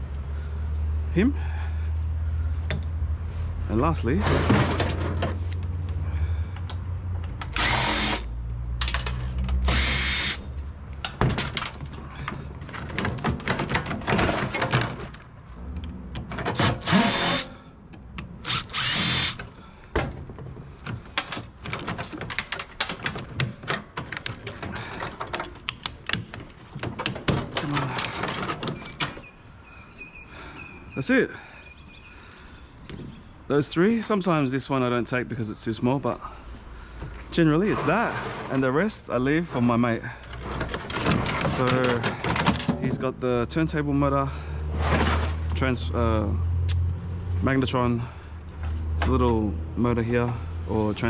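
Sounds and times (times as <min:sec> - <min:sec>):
metal parts clanking and rattling: 0:04.0 - 0:06.0, 0:11.0 - 0:17.5, 0:18.4 - 0:29.3, 0:39.5 - 0:43.2
cordless drill whirring: 0:07.5 - 0:08.3, 0:09.7 - 0:10.4, 0:16.6 - 0:17.5, 0:18.4 - 0:19.4.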